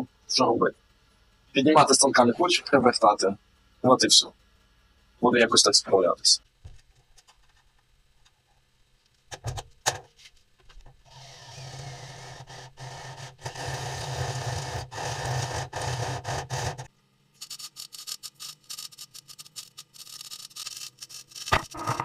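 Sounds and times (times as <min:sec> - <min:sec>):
faint crackles and clicks: 0:06.4 - 0:11.0, 0:16.9 - 0:22.0
welding arc crackling: 0:12.4 - 0:22.0.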